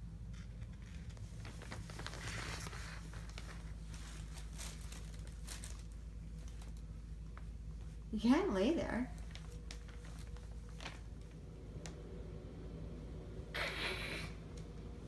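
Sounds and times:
paper rustling and crinkling: 0:00.3 - 0:08.0, 0:09.2 - 0:11.4.

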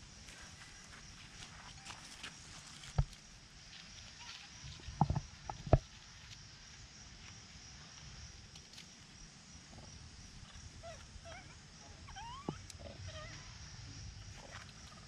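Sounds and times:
animal chirps and squeaks: 0:10.8 - 0:13.4.

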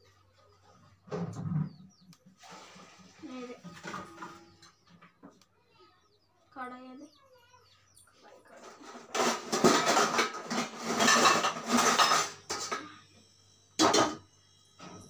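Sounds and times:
metal utensils clattering: 0:08.5 - 0:12.8.

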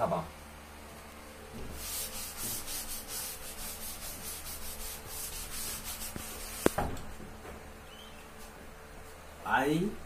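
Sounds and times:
duster wiping chalk off blackboard: 0:01.6 - 0:07.0.

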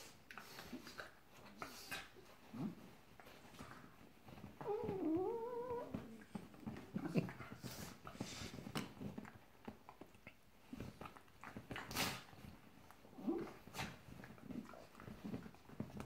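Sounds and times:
dog whining: 0:04.6 - 0:07.1.

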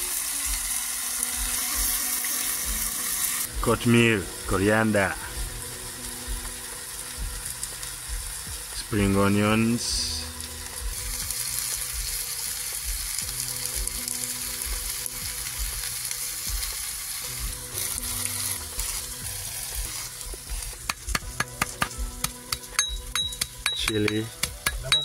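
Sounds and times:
vegetables sizzling in frying pan: 0:00.0 - 0:25.0
knife chopping: 0:20.8 - 0:25.0.

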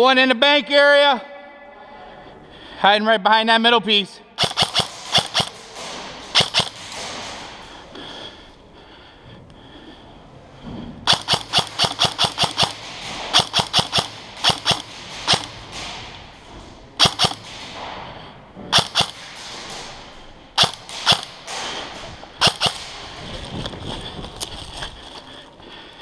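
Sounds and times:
airsoft rifles firing: 0:04.4 - 0:08.0, 0:11.1 - 0:18.0, 0:18.6 - 0:24.9.

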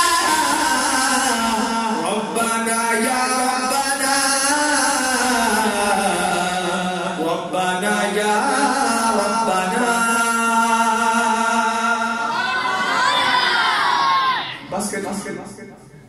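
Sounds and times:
man singing unaccompanied: 0:00.0 - 0:12.3.

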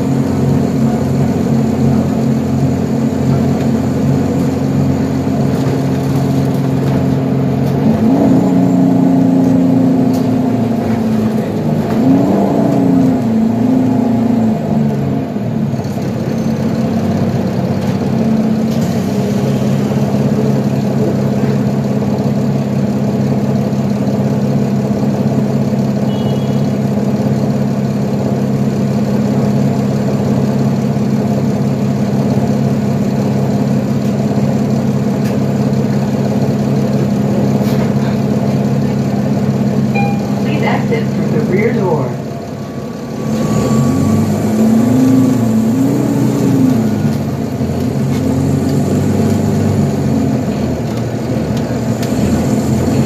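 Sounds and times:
bus engine drone: 0:00.0 - 0:53.0.

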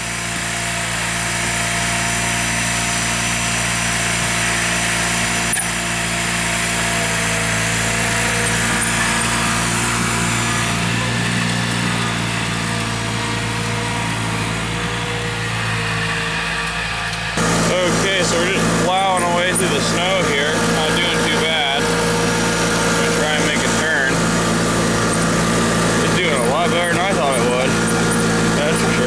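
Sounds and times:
lawn tractor engine running: 0:00.0 - 0:29.0.

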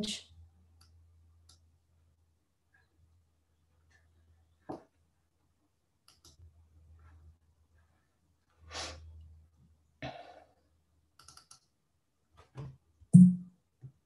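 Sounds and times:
computer mouse clicks: 0:06.0 - 0:06.4, 0:11.2 - 0:11.7.

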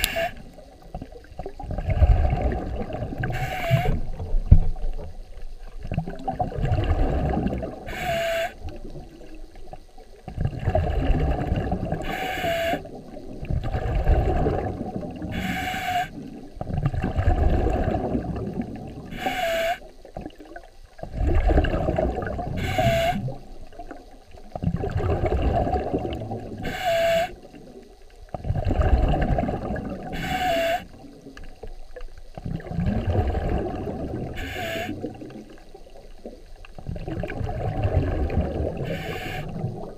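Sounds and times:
regulator inhale hiss: 0:00.0 - 0:00.6, 0:03.3 - 0:04.1, 0:07.8 - 0:08.6, 0:12.0 - 0:13.0, 0:15.2 - 0:16.3, 0:19.1 - 0:19.9, 0:22.6 - 0:23.4, 0:26.6 - 0:27.5, 0:30.0 - 0:31.0, 0:34.2 - 0:35.1, 0:38.8 - 0:39.9
underwater exhale bubbling: 0:00.0 - 0:39.9.

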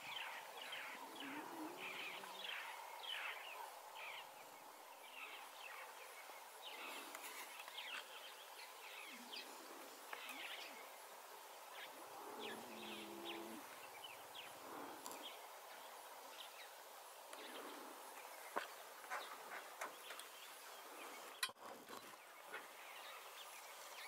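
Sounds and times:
faint bird chirps: 0:11.7 - 0:15.5.

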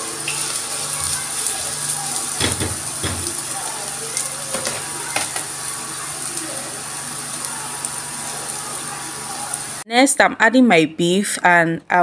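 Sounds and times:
onions sizzling in hot oil: 0:00.0 - 0:09.8
spatula knocking against pan: 0:02.4 - 0:03.4.

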